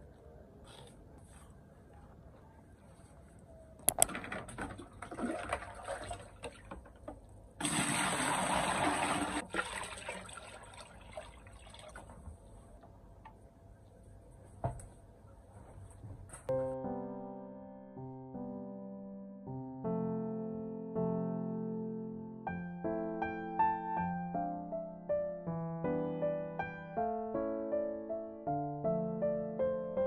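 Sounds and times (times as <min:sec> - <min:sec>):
water pouring into plastic bucket: 0:04.0 - 0:07.0, 0:07.6 - 0:12.2
water splashing: 0:04.7 - 0:06.8.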